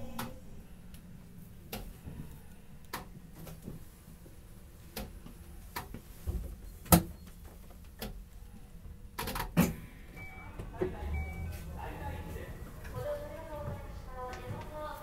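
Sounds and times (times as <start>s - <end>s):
low train rumble: 9.8s - 15.0s.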